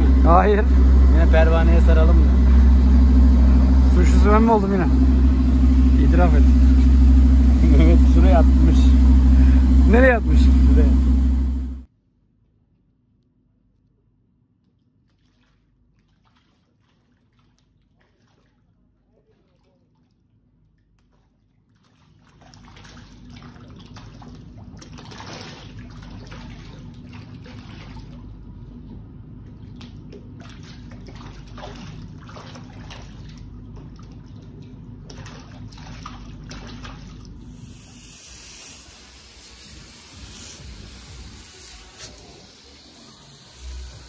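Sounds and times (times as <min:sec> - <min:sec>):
water sloshing against hull: 0:00.0 - 0:11.8, 0:15.0 - 0:37.6
low mechanical hum: 0:00.0 - 0:11.9, 0:22.1 - 0:44.0
steady hiss: 0:37.6 - 0:44.0.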